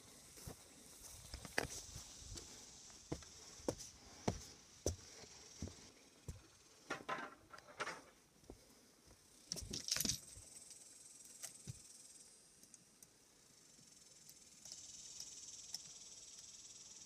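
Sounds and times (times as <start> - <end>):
steady high hiss: 0.0 - 6.8, 8.2 - 17.0
footsteps walking: 0.3 - 6.5.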